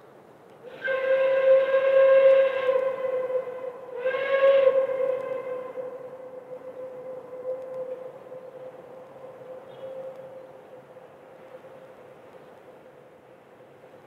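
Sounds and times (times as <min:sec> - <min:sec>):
steam locomotive whistle: 0:00.6 - 0:10.5.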